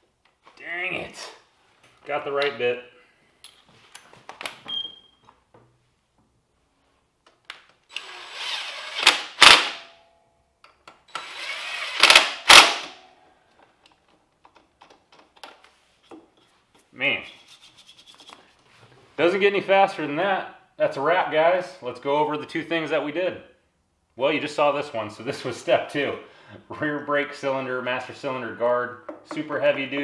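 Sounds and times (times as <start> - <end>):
impact driver driving bolts: 11.1 - 13.0.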